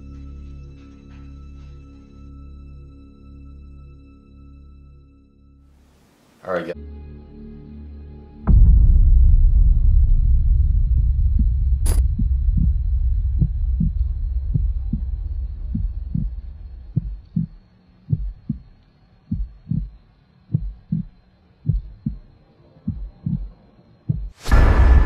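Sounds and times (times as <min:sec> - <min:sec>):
low rumbling drone: 0:08.3 - 0:18.8, 0:24.4 - 0:25.0
heartbeat thumps: 0:08.5 - 0:25.0.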